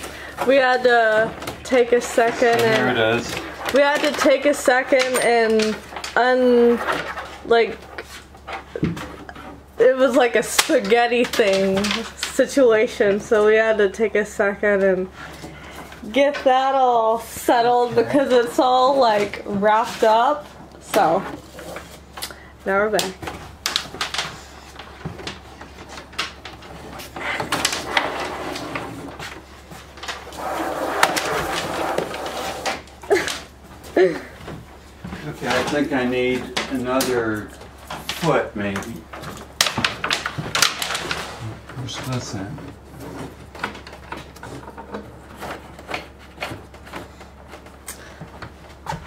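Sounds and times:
wire rustling and scraping on wood: 0:00.0 - 0:13.7, 0:23.2 - 0:33.9, 0:35.2 - 0:49.0
wire scraping along wood: 0:00.5 - 0:08.1, 0:27.2 - 0:29.2, 0:30.0 - 0:33.1.

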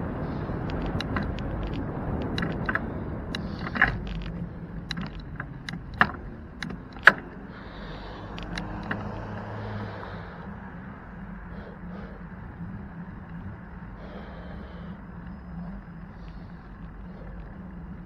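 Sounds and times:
wind and road rumble: 0:00.0 - 0:18.0
bicycle rattling clicks: 0:00.3 - 0:18.0.

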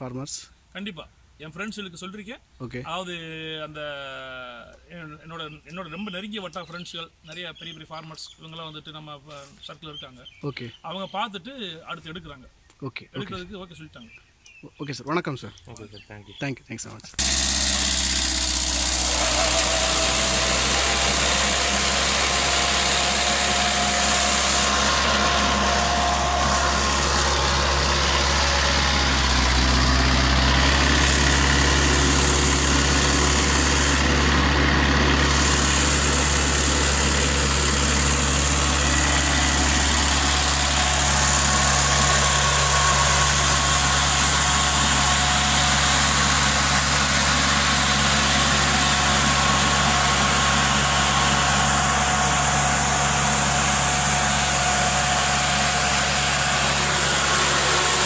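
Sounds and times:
diesel tractor engine running: 0:17.2 - 0:58.0
sprayer fan hiss of blown air: 0:17.2 - 0:58.0.

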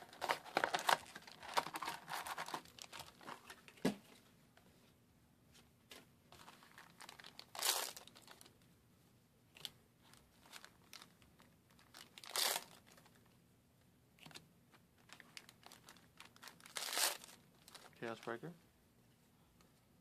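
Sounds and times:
foil packs crinkling: 0:00.0 - 0:03.5, 0:06.4 - 0:08.5, 0:10.4 - 0:13.2, 0:15.0 - 0:18.3
foil packs ripping: 0:06.7 - 0:08.5, 0:11.8 - 0:13.0, 0:15.4 - 0:18.0.

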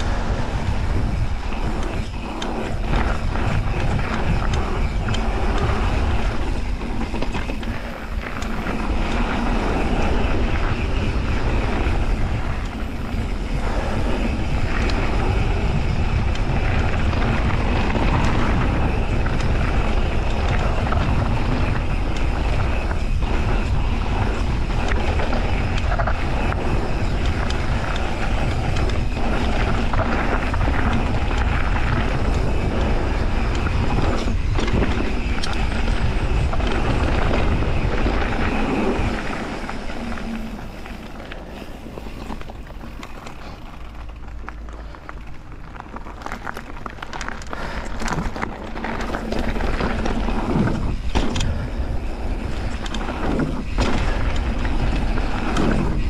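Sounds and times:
bike clicks and knocks: 0:00.0 - 0:56.0
bike tyre noise: 0:00.0 - 0:56.0
wind on microphone: 0:00.0 - 0:56.0.

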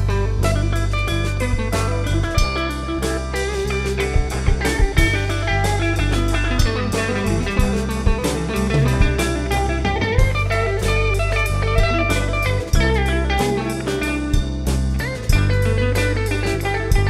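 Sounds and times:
drum kit: 0:00.0 - 0:17.0
electric guitar lead line: 0:00.0 - 0:17.0.

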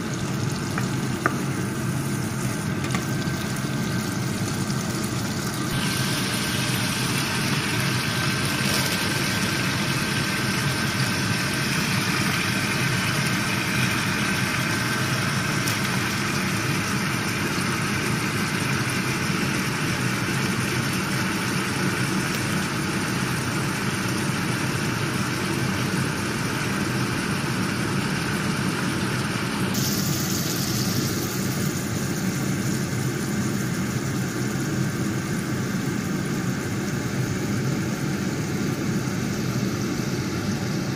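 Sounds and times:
food sizzling in a frying pan: 0:00.0 - 0:40.9
steady low hum: 0:29.4 - 0:40.9.

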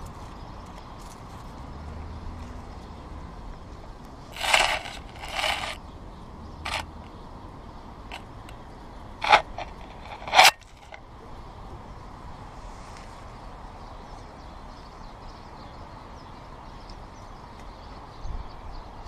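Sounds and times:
squirrel digging in crusty snow: 0:04.4 - 0:05.8.

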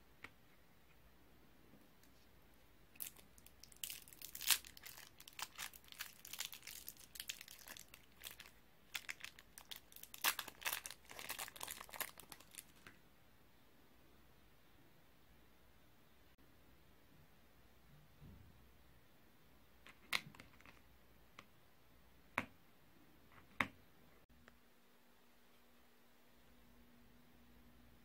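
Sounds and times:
candy wrapper crinkling: 0:03.0 - 0:12.9.

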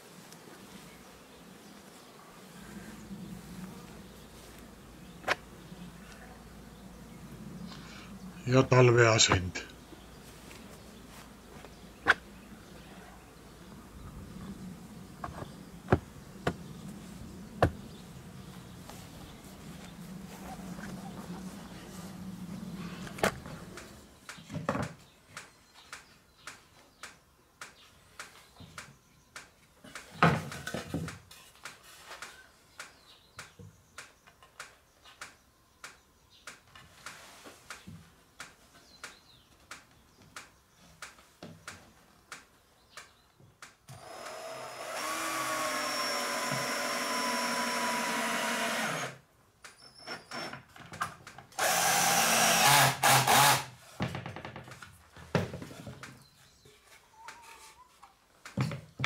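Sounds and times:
honeybees buzzing: 0:00.0 - 0:24.1.

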